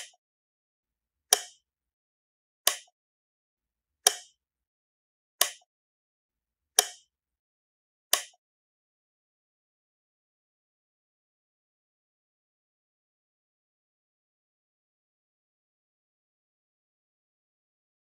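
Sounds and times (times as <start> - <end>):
switch clicking: 1.3 - 1.6, 2.7 - 2.9, 4.1 - 4.3, 5.4 - 5.6, 6.8 - 7.1, 8.1 - 8.4.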